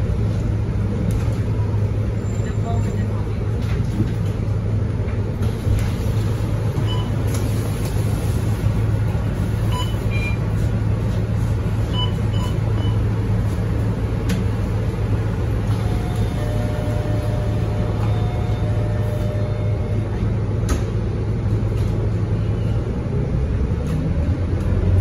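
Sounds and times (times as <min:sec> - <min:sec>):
bus diesel engine idling: 0:00.0 - 0:25.0
short electronic beeps: 0:09.7 - 0:10.4.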